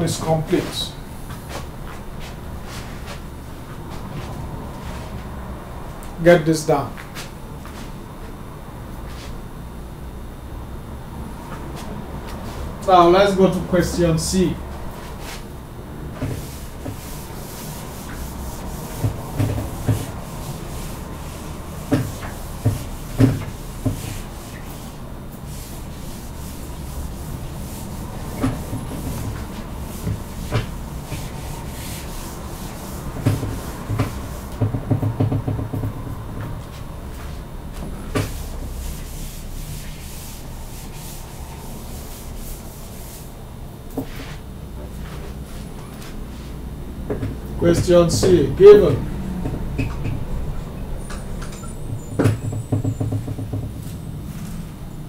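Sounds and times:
eraser rubbing on whiteboard: 16.2 - 35.6, 38.1 - 43.3.

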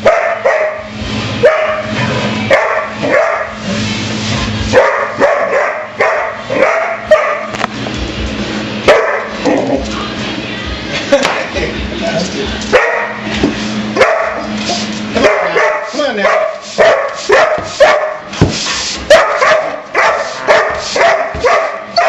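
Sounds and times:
dog barking: 0.0 - 3.6, 4.7 - 7.6, 8.9 - 9.6, 12.7 - 13.2, 14.0 - 14.5, 15.2 - 18.3, 19.1 - 22.0.

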